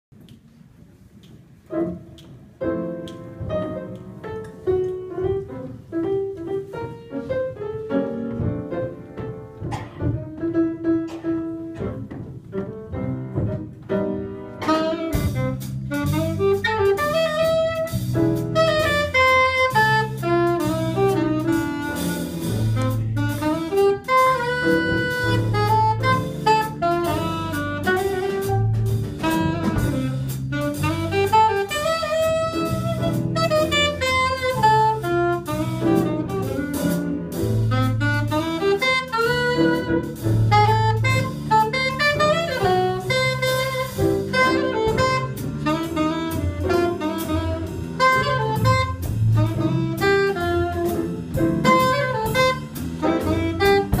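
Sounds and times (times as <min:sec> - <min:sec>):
piano: 0:00.1 - 0:54.0
drum kit with cymbals: 0:14.0 - 0:54.0
saxophone melody: 0:14.5 - 0:54.0
bass line: 0:14.6 - 0:54.0.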